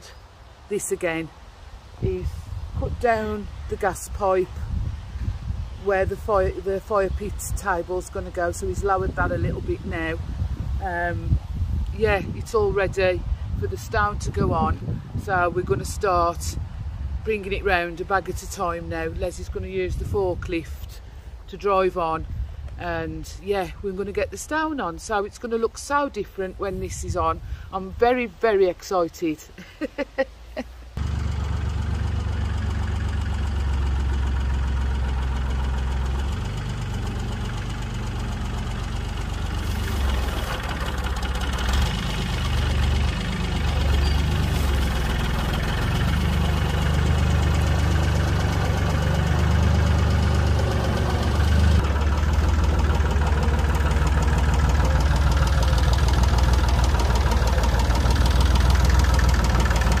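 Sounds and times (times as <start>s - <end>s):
forklift engine revving: 31.0s - 60.0s.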